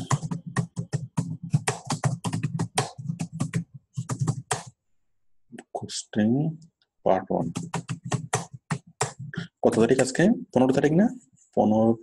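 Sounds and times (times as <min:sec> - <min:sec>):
fast typing on keyboard: 0:00.0 - 0:04.7, 0:07.4 - 0:10.2.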